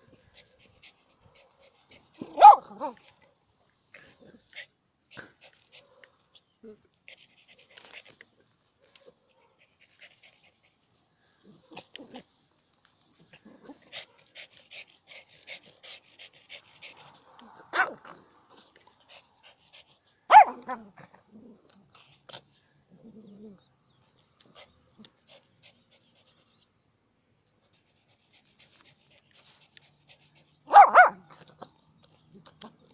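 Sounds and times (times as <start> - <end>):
dog barking: 2.2 - 3.0, 17.7 - 18.0, 20.3 - 20.8, 30.7 - 31.2.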